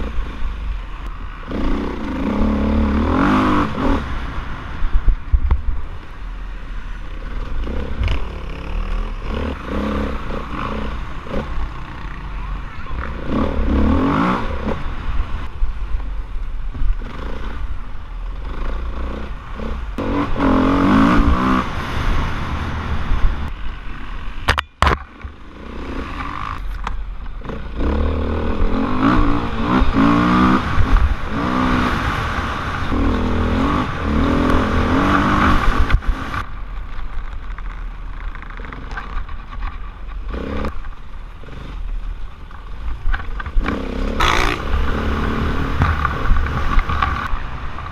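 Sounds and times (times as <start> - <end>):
dirt bike engine revving: 1.2 - 4.5, 6.9 - 15.5, 18.3 - 24.5, 25.3 - 26.7, 27.4 - 36.4, 40.2 - 40.8, 43.6 - 47.3.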